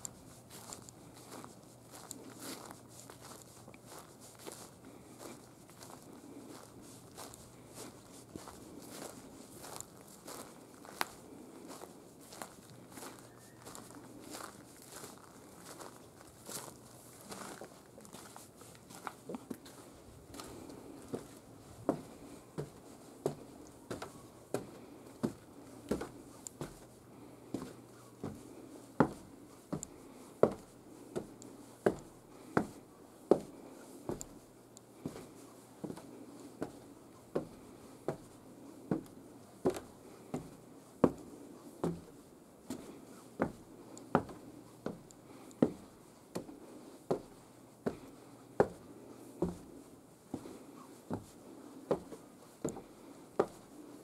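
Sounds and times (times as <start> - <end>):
footsteps on wooden stairs: 18.2 - 26.9, 27.5 - 34.4, 35.0 - 42.8, 43.4 - 48.8, 49.4 - 49.7, 51.9 - 53.6.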